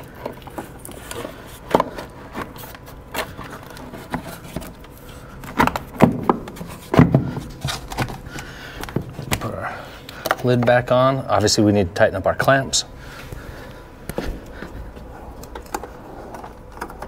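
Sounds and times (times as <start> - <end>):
plastic scraping and rubbing: 0.1 - 9.4.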